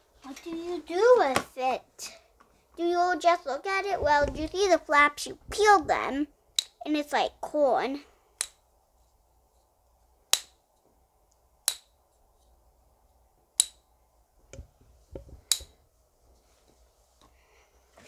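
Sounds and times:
soft handling rustle: 8.9s - 10.0s, 14.7s - 18.0s
fidget toy snaps: 10.3s - 10.6s, 11.6s - 12.0s, 13.6s - 13.8s.

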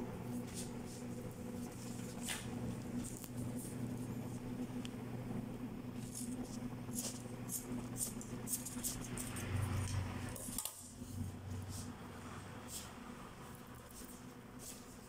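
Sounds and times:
steady low hum: 0.0s - 15.0s
scissors snipping paper: 6.1s - 9.4s.

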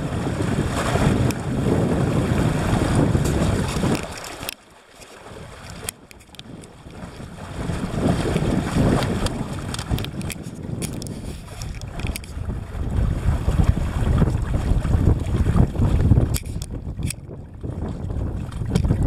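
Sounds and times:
wind buffeting microphone: 0.0s - 4.5s, 5.2s - 19.0s
water rushing along hull: 0.0s - 19.0s
water splashes: 0.0s - 19.0s
small clicks: 3.8s - 6.7s, 9.2s - 12.4s, 16.3s - 17.2s.

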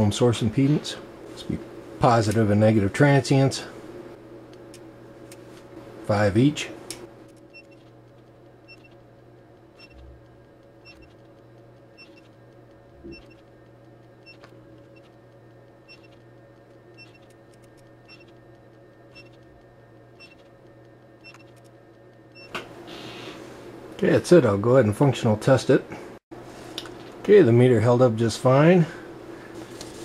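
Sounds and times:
steady low hum: 0.0s - 30.0s
electronic double beeps: 12.0s - 12.3s, 15.9s - 16.2s, 19.1s - 19.4s, 20.2s - 20.4s.

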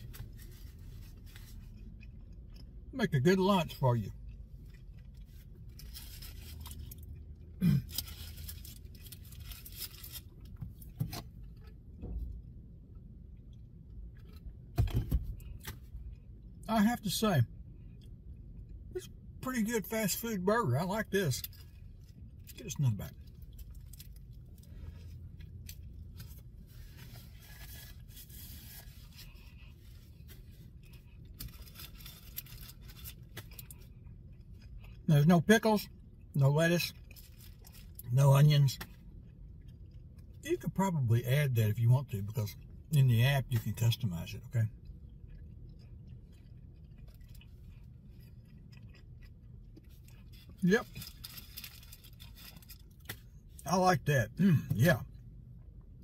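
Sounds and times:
low steady hum: 0.0s - 56.0s
chewing: 44.8s - 53.1s
paper wrapper crinkling: 50.8s - 52.9s.

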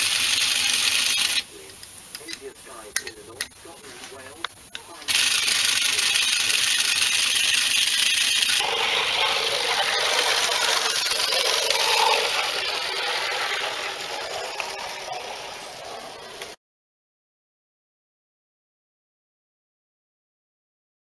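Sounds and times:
model steam engine hissing: 0.0s - 1.6s, 2.6s - 16.6s.

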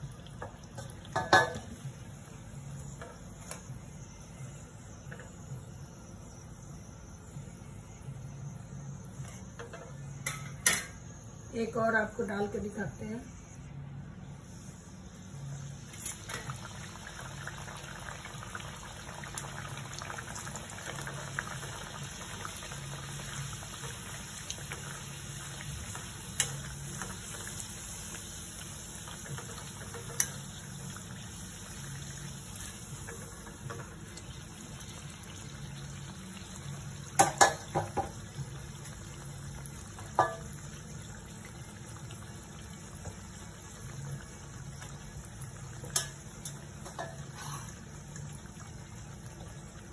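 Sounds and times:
oil sizzling and bubbling: 0.0s - 13.5s, 14.2s - 49.9s.

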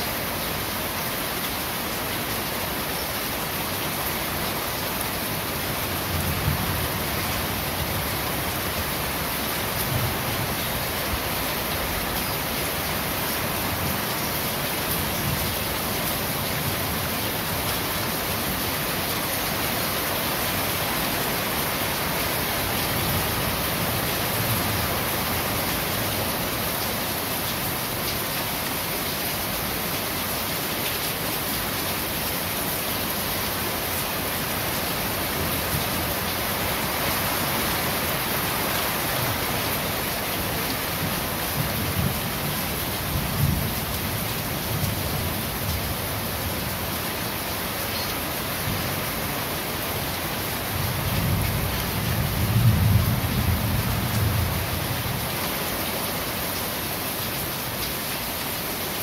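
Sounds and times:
rain on corrugated roof: 0.0s - 59.0s.

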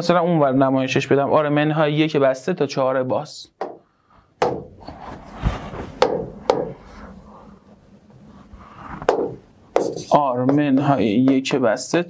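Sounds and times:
stylus tapping glass screen: 3.6s - 4.8s, 6.0s - 6.8s, 9.0s - 11.6s
soft rubbing on screen: 4.0s - 9.1s, 9.7s - 10.4s.

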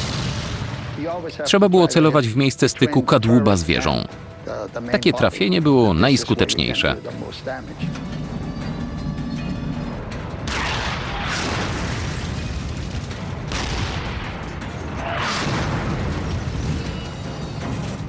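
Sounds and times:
tank cannon blasts: 0.0s - 1.4s, 10.3s - 18.0s
steady low rumble: 2.6s - 16.8s.

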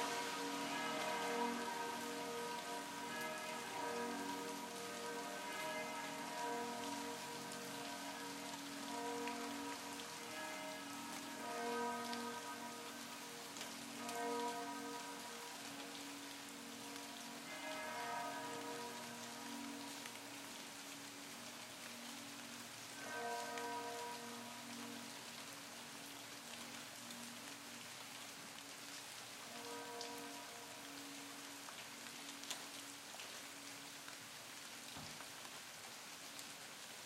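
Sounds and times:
church bells ringing: 0.0s - 13.2s
rain falling on leaves: 0.0s - 37.0s.

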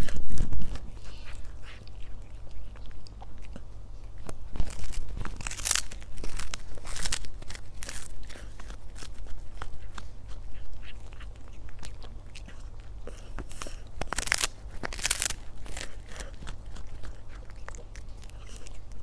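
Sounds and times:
cat crunching dried fish: 0.0s - 19.0s.

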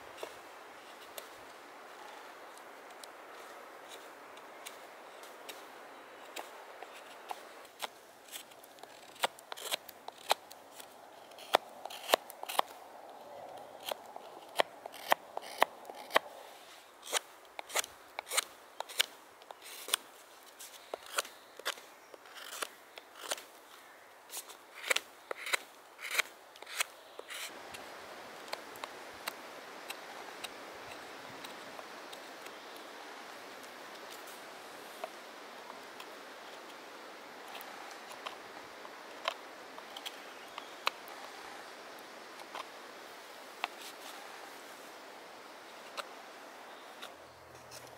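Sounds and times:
knife cutting wood: 7.8s - 12.8s, 13.8s - 16.3s, 17.0s - 20.0s, 24.4s - 27.5s
knife scraping wood: 7.8s - 12.8s, 13.8s - 16.2s, 20.9s - 23.4s, 24.3s - 27.5s.

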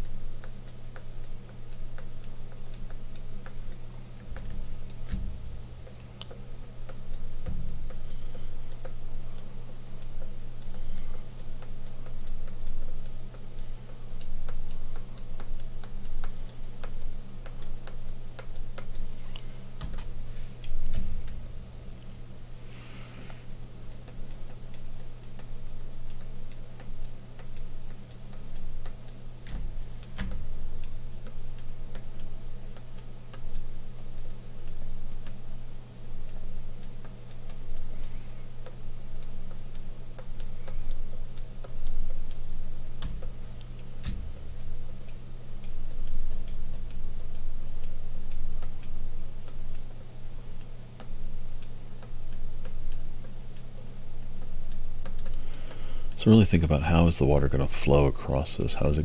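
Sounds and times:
light ticking: 0.0s - 22.7s, 23.3s - 59.0s
sharp clicks: 38.6s - 59.0s.

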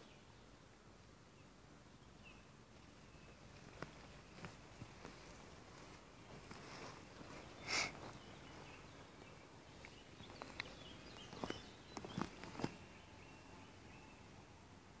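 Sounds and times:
faint bird calls: 1.4s - 14.6s
hissing rustle: 3.5s - 8.9s.

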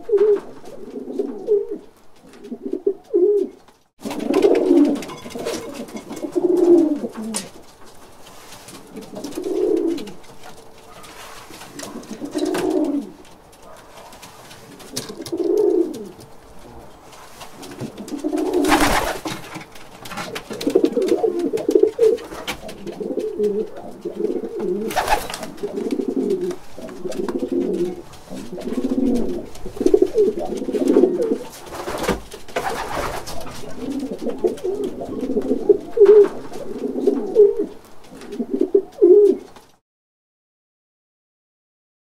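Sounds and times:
pigeons cooing: 0.0s - 7.6s, 8.8s - 19.2s, 20.2s - 39.6s
wings flapping: 17.1s - 34.8s.

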